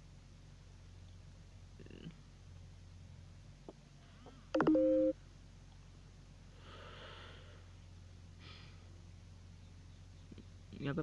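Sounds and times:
low steady hum: 0:00.0 - 0:11.0
brief steady tone: 0:04.5 - 0:05.2
faint breath near microphone: 0:06.4 - 0:09.0.

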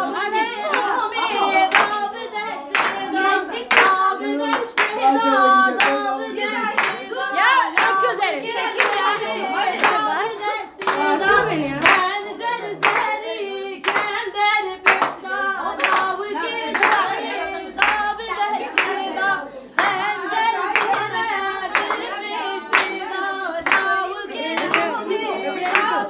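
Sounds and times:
group of voices singing: 0:00.0 - 0:26.0
hand claps: 0:00.7 - 0:01.0, 0:01.7 - 0:02.1, 0:02.7 - 0:05.1, 0:05.8 - 0:06.0, 0:06.7 - 0:07.1, 0:07.8 - 0:08.1, 0:08.7 - 0:10.1, 0:10.8 - 0:11.2, 0:11.8 - 0:12.1, 0:12.8 - 0:13.2, 0:13.8 - 0:14.2, 0:14.8 - 0:15.2, 0:15.8 - 0:18.2, 0:18.8 - 0:19.1, 0:19.8 - 0:26.0.

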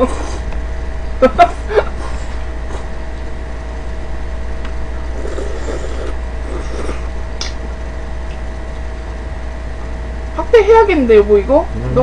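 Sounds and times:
steady low hum: 0:00.0 - 0:12.0
slurping noodles: 0:05.2 - 0:07.1.

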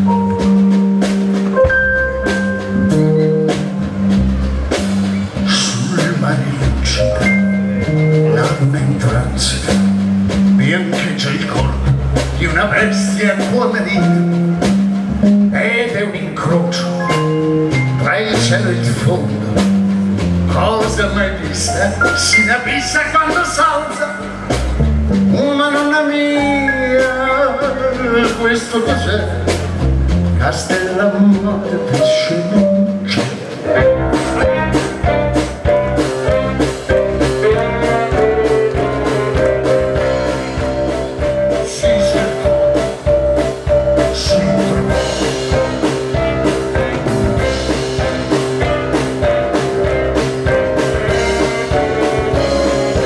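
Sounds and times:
bass guitar: 0:00.0 - 0:53.0
drum kit beat: 0:00.0 - 0:53.0
keyboards: 0:00.0 - 0:53.0
live band playing: 0:00.0 - 0:53.0
man singing: 0:05.4 - 0:10.0, 0:10.6 - 0:14.4, 0:15.4 - 0:19.6, 0:20.5 - 0:24.5, 0:25.3 - 0:29.6, 0:30.4 - 0:34.7, 0:41.5 - 0:42.9, 0:44.0 - 0:49.2
saxophone: 0:33.1 - 0:41.5, 0:43.1 - 0:53.0.

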